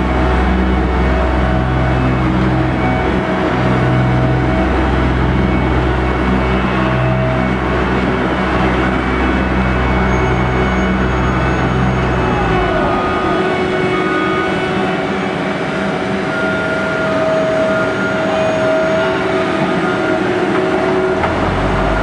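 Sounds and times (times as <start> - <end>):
deep rumble: 0.0 - 15.3
diesel engines running: 0.0 - 22.0
machine whine: 0.0 - 22.0
falling tone: 8.8 - 18.6.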